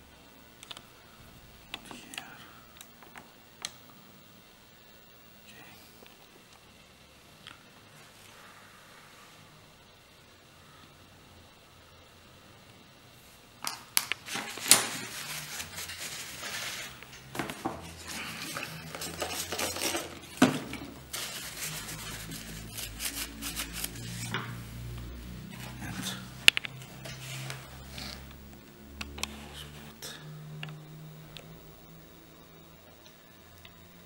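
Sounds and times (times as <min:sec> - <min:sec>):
paper tissue rustling: 0:14.2 - 0:24.9, 0:26.9 - 0:27.8.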